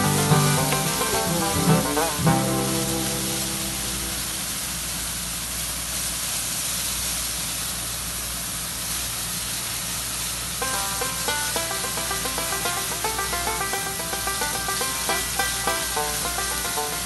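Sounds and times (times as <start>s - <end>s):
background music: 0.0s - 4.5s.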